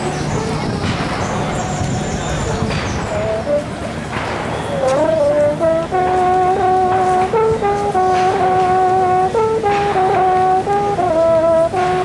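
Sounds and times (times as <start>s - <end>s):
hunting horn fanfare: 2.7s - 12.0s.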